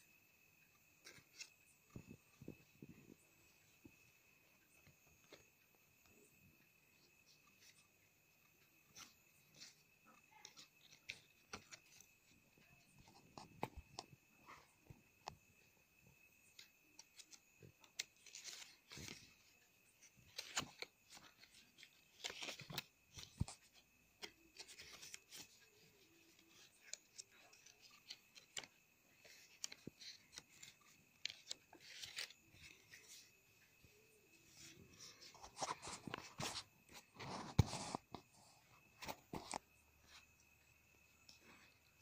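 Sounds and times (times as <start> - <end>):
paper rustling and scraping: 8.8 - 13.8, 16.6 - 33.3, 34.4 - 40.2.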